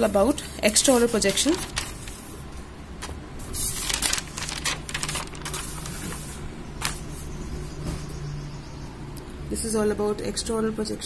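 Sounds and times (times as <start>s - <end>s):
notebook pages rustling: 0.6s - 7.3s.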